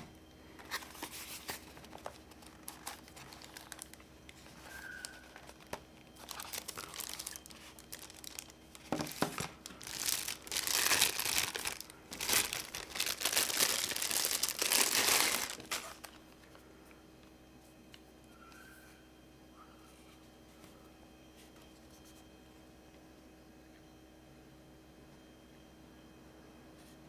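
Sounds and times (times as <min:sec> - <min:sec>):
plastic wrap crinkling: 0:00.0 - 0:16.4.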